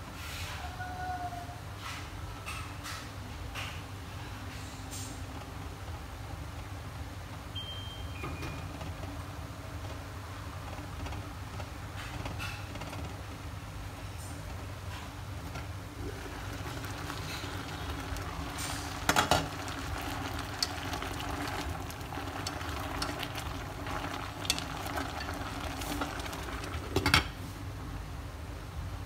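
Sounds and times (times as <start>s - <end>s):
water boiling in a pot: 5.0s - 28.0s.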